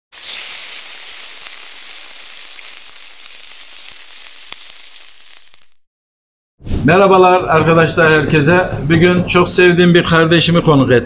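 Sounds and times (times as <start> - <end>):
crackling pops: 0.1 - 5.8
food sizzling in a pan: 0.1 - 5.8.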